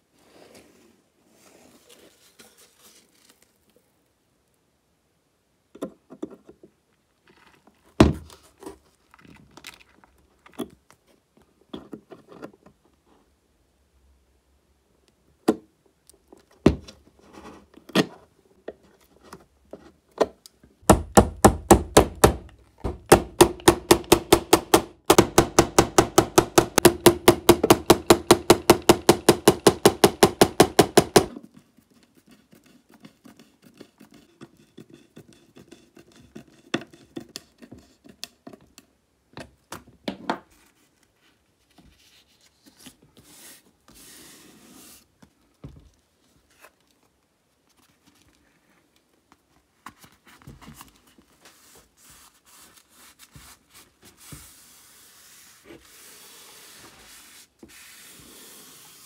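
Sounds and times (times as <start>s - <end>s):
rapid sharp knocks: 20.9s - 31.3s.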